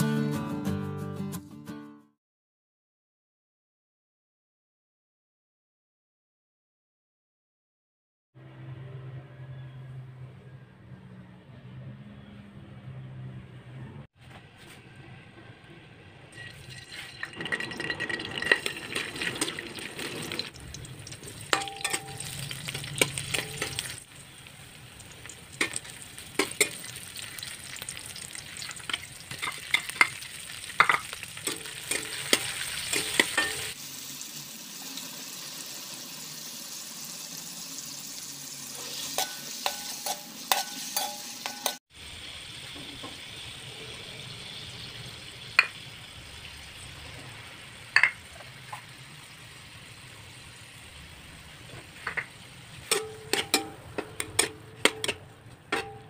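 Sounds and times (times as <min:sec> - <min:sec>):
food sizzling in a wok: 0:18.4 - 0:55.0
stirring scraping against pan: 0:21.3 - 0:24.3, 0:28.5 - 0:33.8, 0:38.8 - 0:41.8, 0:51.7 - 0:56.0.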